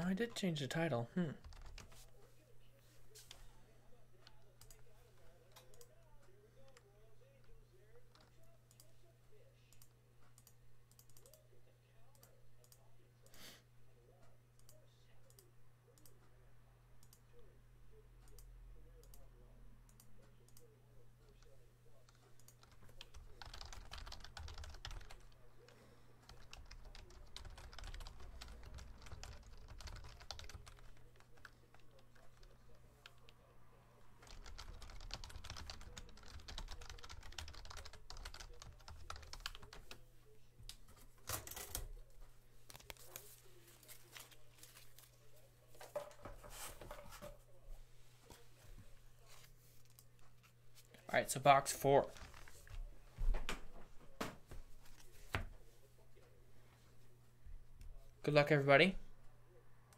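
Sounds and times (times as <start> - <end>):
low electrical hum: 0.0 - 59.9
keyboard typing: 1.4 - 2.0, 22.1 - 33.4, 34.2 - 40.0, 52.0 - 52.7.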